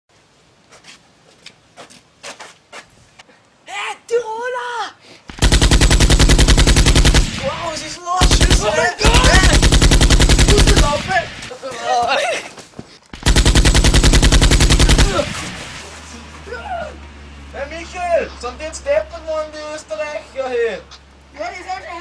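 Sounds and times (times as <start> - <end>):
automatic gunfire bursts: 5.3 - 11.5, 13.2 - 15.9
people shouting: 7.3 - 12.1, 14.4 - 17.0.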